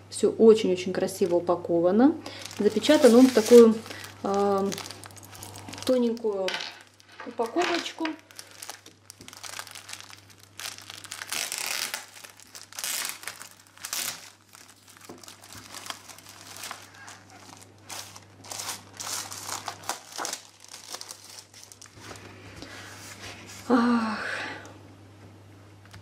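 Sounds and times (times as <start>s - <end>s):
plastic packaging crinkling: 2.2s - 22.3s.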